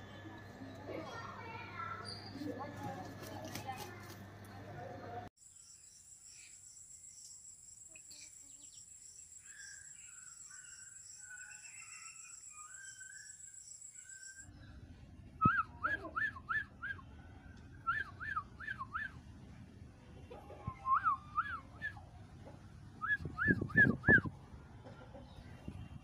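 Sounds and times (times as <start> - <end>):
high steady insect buzz: 5.4 - 14.4
bird chirps: 5.4 - 14.8.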